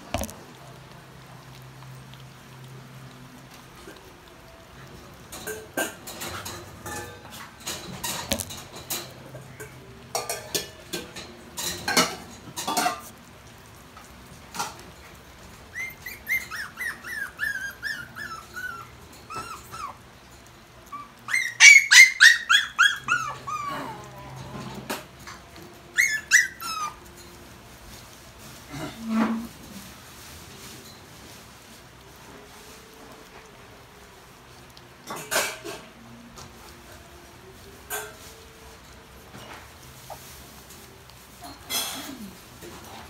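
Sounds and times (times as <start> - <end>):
puppies squealing and yelping: 15.6 - 20.2, 20.8 - 24.2, 25.2 - 27.2.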